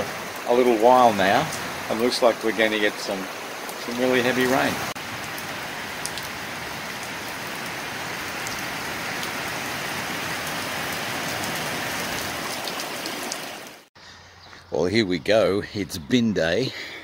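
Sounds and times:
steady rain falling: 0.0 - 13.9
close drips ticking: 0.2 - 7.7.

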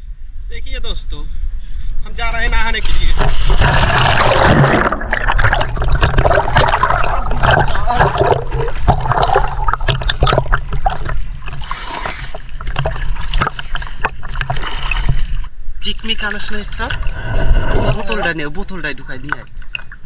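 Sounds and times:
water gurgles and crackles: 1.6 - 20.0
river water splashing and sloshing: 3.0 - 20.0
low rumble: 16.8 - 18.5.

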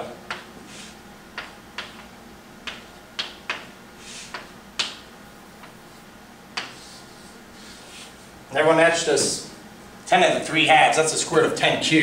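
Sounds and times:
chalk tapping on blackboard: 0.3 - 5.0, 6.5 - 7.0.

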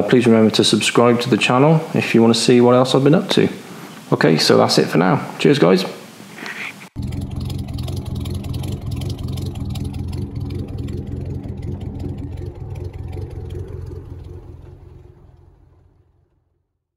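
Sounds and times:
engine running steadily: 7.0 - 16.6.

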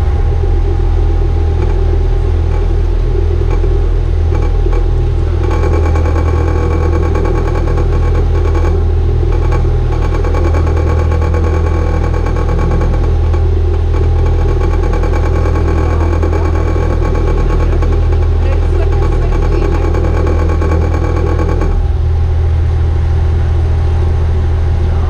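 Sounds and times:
diesel boat engine running: 0.0 - 25.0.

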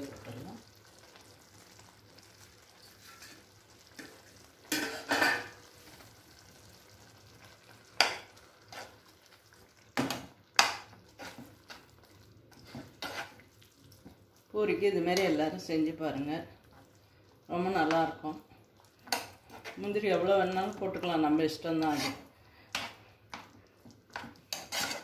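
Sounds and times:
curry sizzling: 0.0 - 25.0
ladle scraping a pan: 2.8 - 5.6, 8.0 - 9.1, 10.6 - 11.9, 12.5 - 13.4, 21.8 - 23.1, 24.2 - 25.0.

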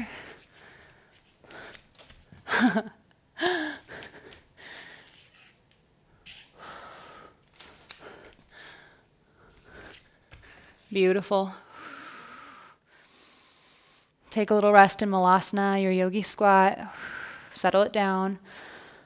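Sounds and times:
woman breathing hard: 0.0 - 5.3, 6.6 - 10.8, 11.6 - 14.2, 18.4 - 19.0.

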